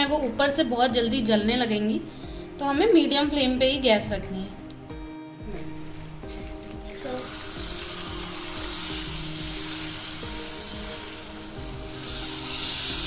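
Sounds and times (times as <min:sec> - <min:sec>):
batter sizzling in hot oil: 0:06.3 - 0:13.0.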